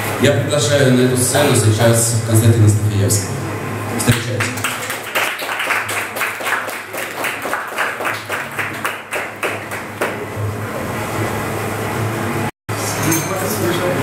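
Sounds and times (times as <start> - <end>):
small audience applauding: 4.0 - 10.3.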